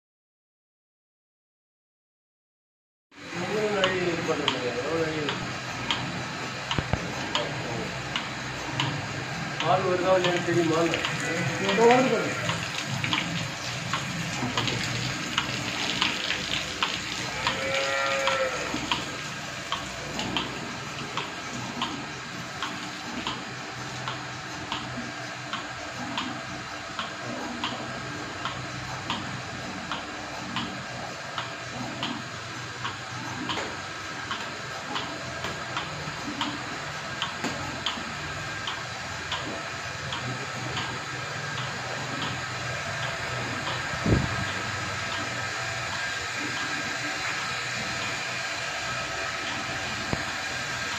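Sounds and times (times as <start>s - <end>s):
milking pulsator clicks: 3.2s - 50.9s
vacuum pump hum: 3.2s - 50.9s
cow mooing: 17.3s - 19.0s.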